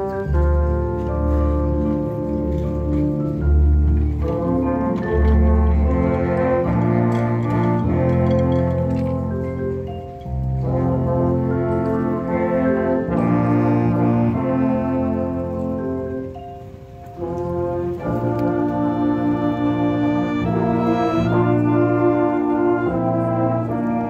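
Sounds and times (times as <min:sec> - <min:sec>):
marching band brass chords: 0:00.0 - 0:24.0.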